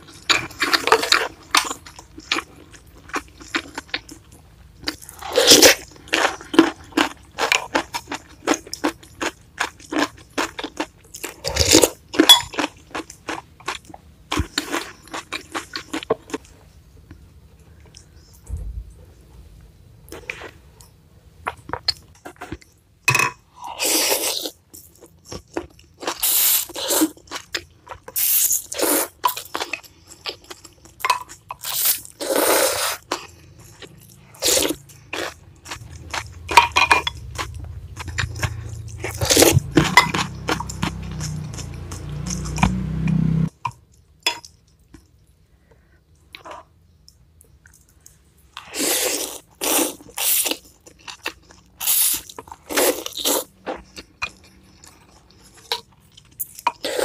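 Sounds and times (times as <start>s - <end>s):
slurping noodles: 31.7s - 33.1s
wet chewing: 37.2s - 43.1s.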